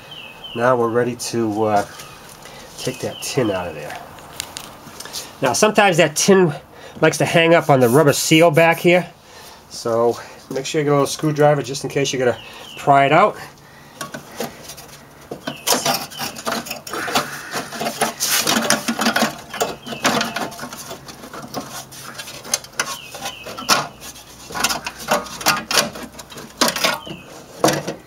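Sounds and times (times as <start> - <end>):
sheet metal scraping and rattling: 14.0 - 28.0.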